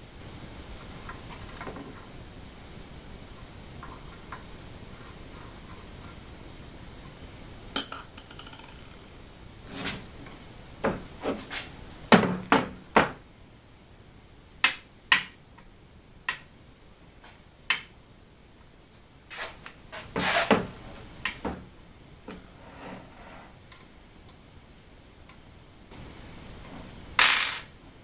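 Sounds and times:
metal parts knocking on a table: 0:07.8 - 0:09.0, 0:27.2 - 0:27.7.

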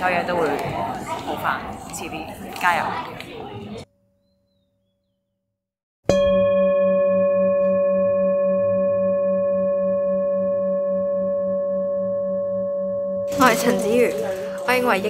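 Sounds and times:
singing bowl ringing: 0:06.1 - 0:15.0.

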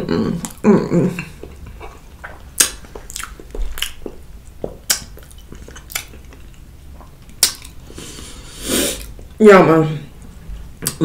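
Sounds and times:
wet chewing: 0:01.2 - 0:09.4
mouth smacks and clicks: 0:01.6 - 0:04.2, 0:04.8 - 0:06.6, 0:07.2 - 0:07.8.

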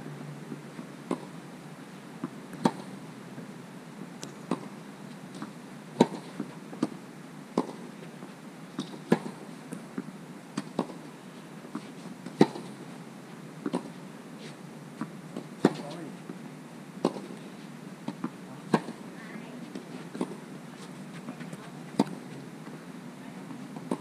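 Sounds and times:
tennis ball bouncing: 0:02.6 - 0:02.9, 0:05.4 - 0:06.9, 0:07.6 - 0:07.8, 0:08.8 - 0:09.4, 0:10.6 - 0:11.0, 0:11.7 - 0:12.7, 0:13.6 - 0:14.0, 0:15.4 - 0:15.9, 0:17.0 - 0:17.3, 0:18.0 - 0:19.0, 0:19.7 - 0:22.2, 0:23.8 - 0:24.0
tennis racket striking ball: 0:17.0 - 0:17.3, 0:18.1 - 0:19.0.

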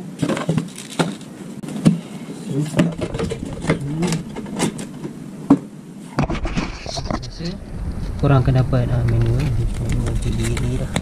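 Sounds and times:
plastic wrap and foam crinkling: 0:00.2 - 0:01.4.

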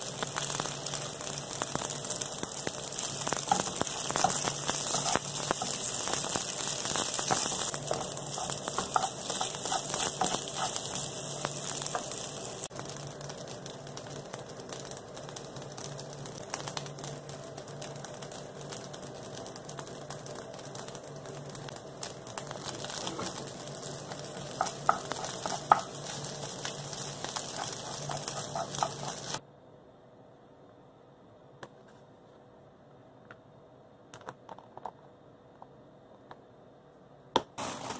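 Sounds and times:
rice sizzling in a frying pan: 0:00.0 - 0:29.4, 0:37.6 - 0:37.9.

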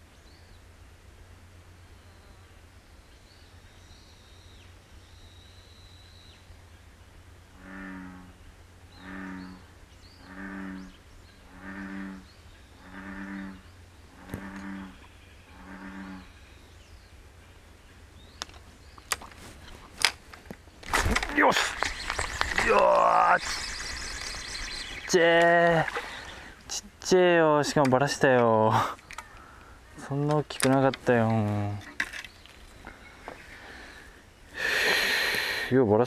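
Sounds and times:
bullfrog calling: 0:07.5 - 0:16.5, 0:21.2 - 0:26.8.

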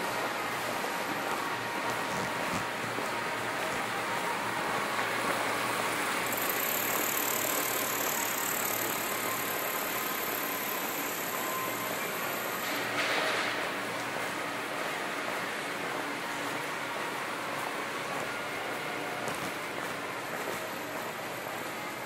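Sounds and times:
thin high whine: 0:00.0 - 0:14.5
city street noise: 0:00.0 - 0:22.0.

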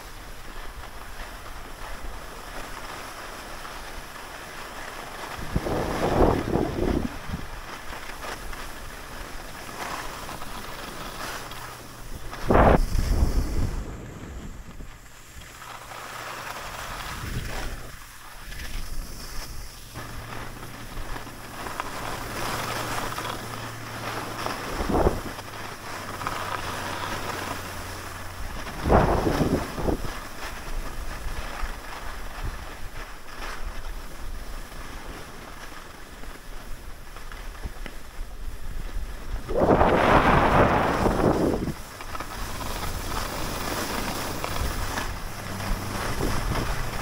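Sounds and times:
skis sliding on snow: 0:00.0 - 0:47.0
wind rushing over microphone: 0:05.3 - 0:07.7, 0:11.5 - 0:15.8, 0:16.6 - 0:25.5, 0:27.5 - 0:31.3, 0:37.6 - 0:47.0.

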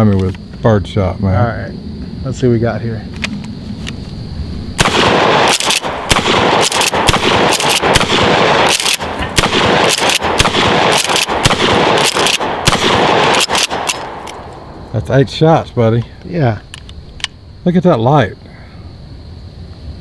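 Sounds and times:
shotgun pump action: 0:04.8 - 0:14.4
shotgun shots: 0:04.8 - 0:14.4.

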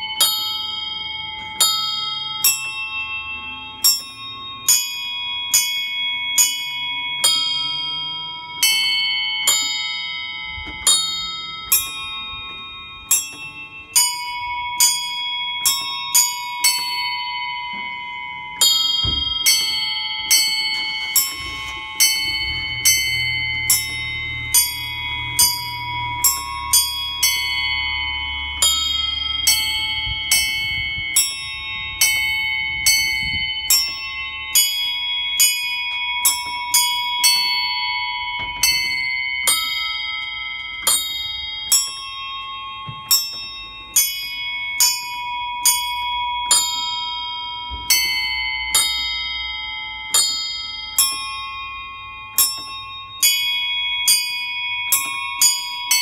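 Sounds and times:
small bells playing a tune: 0:00.0 - 0:56.0.

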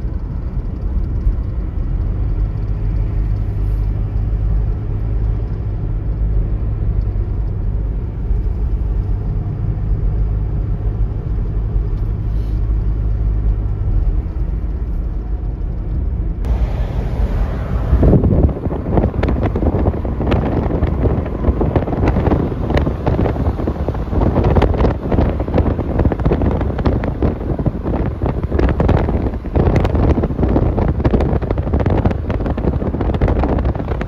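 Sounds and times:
car driving rumble: 0:00.0 - 0:34.0
wind noise rush: 0:16.4 - 0:34.0.

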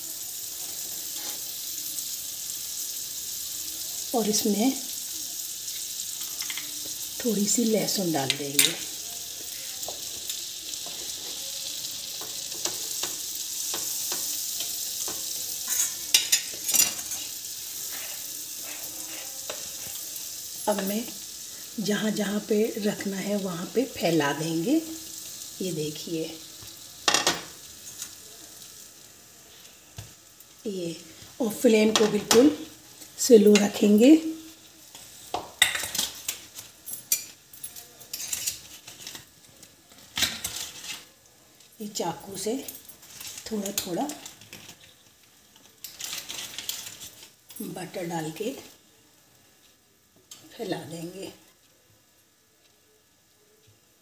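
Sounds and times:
butter sizzling in frying pan: 0:00.0 - 0:54.0
kitchen utensils clicking and clinking: 0:05.7 - 0:28.2, 0:31.1 - 0:34.3, 0:34.9 - 0:48.7
spatula scraping and tapping pan: 0:08.2 - 0:21.2, 0:34.9 - 0:37.4.

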